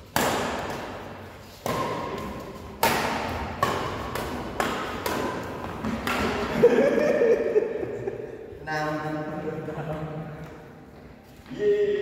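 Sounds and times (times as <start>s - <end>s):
rackets striking shuttlecock: 0.0s - 6.6s.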